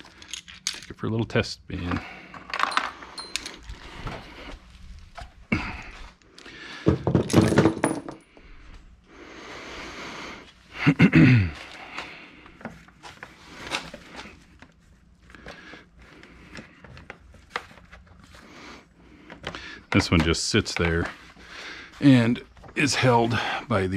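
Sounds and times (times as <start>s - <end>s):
metal tools clinking: 0.0s - 1.0s, 2.3s - 3.8s.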